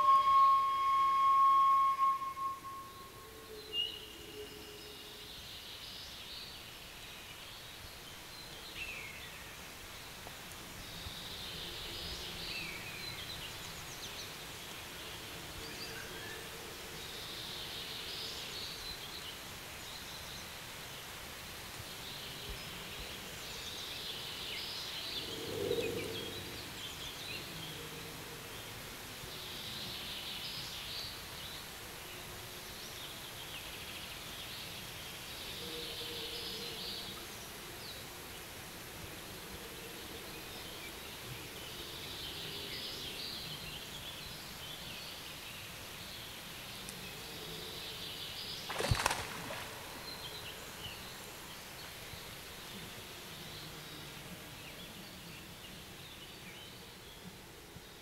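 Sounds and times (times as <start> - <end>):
lower-pitched bird call: 0.0 - 4.6
steady hiss: 0.0 - 58.0.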